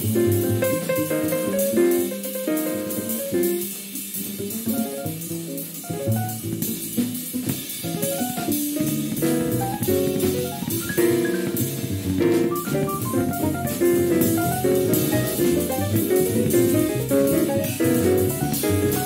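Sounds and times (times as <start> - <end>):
drum kit with cymbals: 0.0 - 19.0
piano: 0.0 - 19.0
melodic instruments playing: 12.4 - 18.3.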